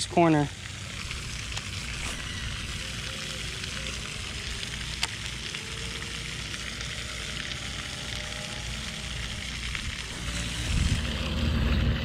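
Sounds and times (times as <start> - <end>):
outdoor hiss: 0.0 - 12.0
wind rumbling on microphone: 7.7 - 12.0.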